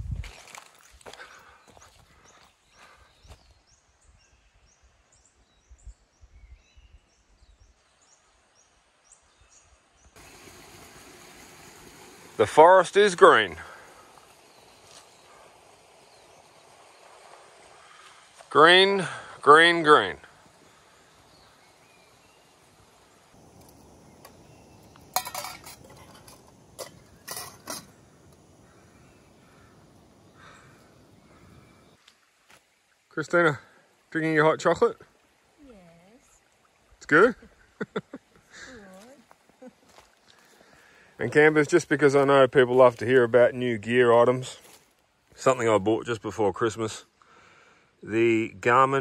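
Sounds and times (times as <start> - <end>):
small bird chirping: 20.5 - 32.0
metal cookware clinking: 24.9 - 28.1.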